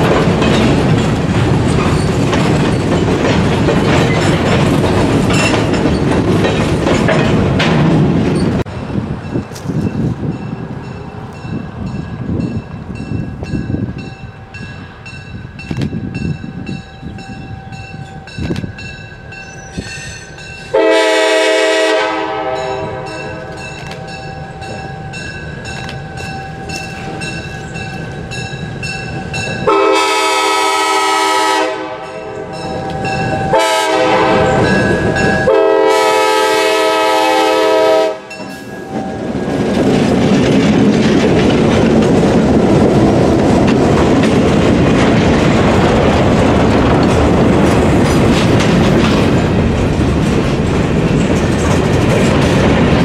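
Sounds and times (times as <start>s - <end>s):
locomotive air horn: 20.7s - 23.6s, 29.6s - 32.6s, 33.5s - 39.2s.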